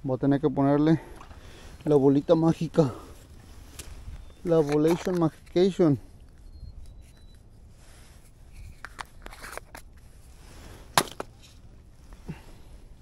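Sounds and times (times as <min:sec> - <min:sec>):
plastic jar clicks and rustles: 0:08.6 - 0:10.0.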